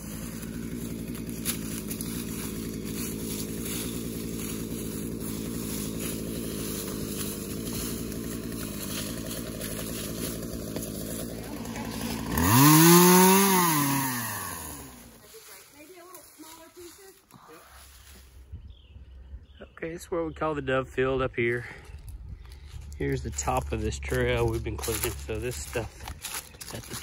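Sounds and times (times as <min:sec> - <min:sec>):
chainsaw idling and revving: 0:00.0 - 0:17.9, 0:21.6 - 0:27.0.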